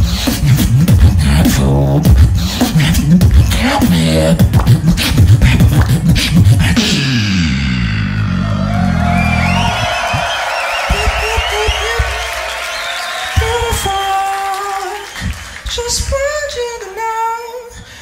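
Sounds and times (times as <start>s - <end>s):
beatboxing snare and hi-hat clicks: 0.0s - 7.4s
beatboxed bass sliding in pitch: 0.0s - 12.6s.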